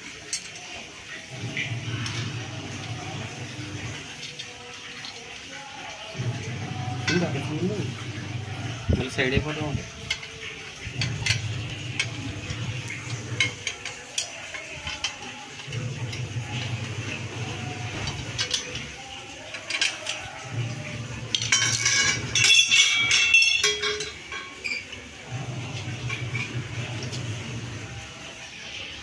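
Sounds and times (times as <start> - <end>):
metal brackets clinking and rattling: 8.6 - 27.3.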